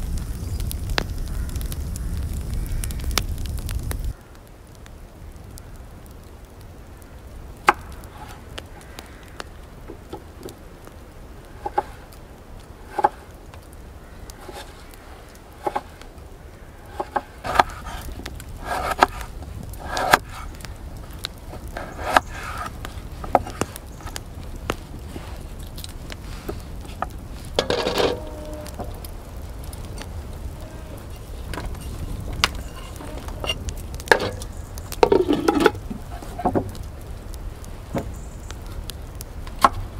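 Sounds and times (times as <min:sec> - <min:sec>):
low background rumble: 0:00.0 - 0:04.2.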